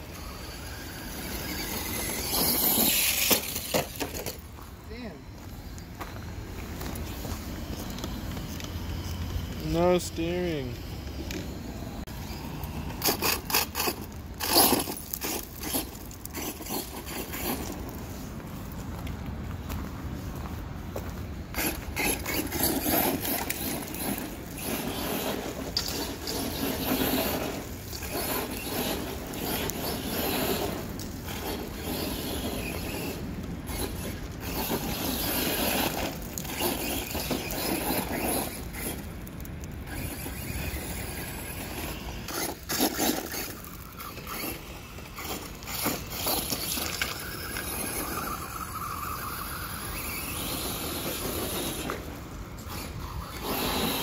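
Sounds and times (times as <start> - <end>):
electric motor whining: 0.0 - 4.4, 5.3 - 17.5
tyres scraping and spraying stones: 0.0 - 18.9, 21.3 - 54.0.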